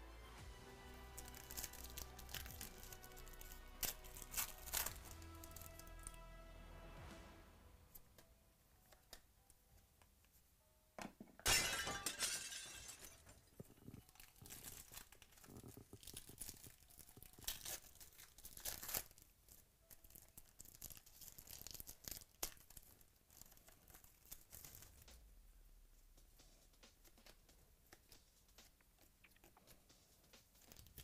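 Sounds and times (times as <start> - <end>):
foil wrappers crinkling: 1.0 - 6.2, 12.5 - 25.1, 27.9 - 31.0
loud tearing crackle: 1.1 - 6.2, 13.9 - 25.0.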